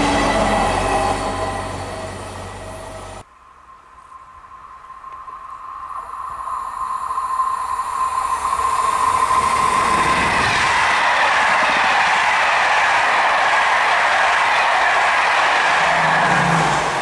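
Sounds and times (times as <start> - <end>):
train wheels rushing on rails: 0.0 - 3.2, 6.3 - 17.0
high-pitched train tone: 0.0 - 17.0.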